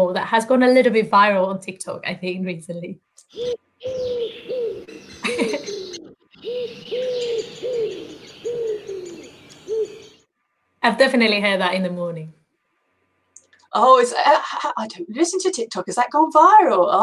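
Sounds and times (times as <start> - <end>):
wood pigeon cooing: 3.3 - 10.2.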